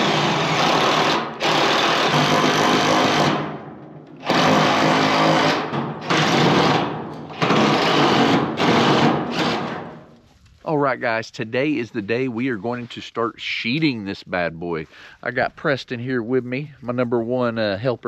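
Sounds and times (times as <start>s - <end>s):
cordless drill on steel sheet: 0.0s - 3.6s, 4.2s - 10.0s.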